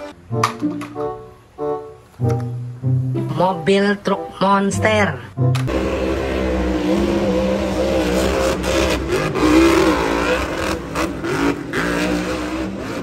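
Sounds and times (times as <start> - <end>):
truck engine revving: 5.4 - 13.0.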